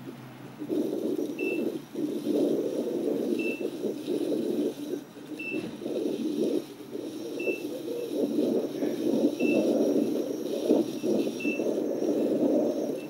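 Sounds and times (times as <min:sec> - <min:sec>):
wind and ground rumble: 0:00.0 - 0:13.0.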